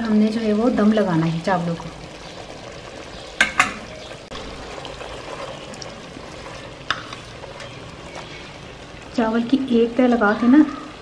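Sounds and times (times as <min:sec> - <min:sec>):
curry sizzling in a metal pot: 0:00.0 - 0:11.0
utensil knocking against pot: 0:03.4 - 0:03.9.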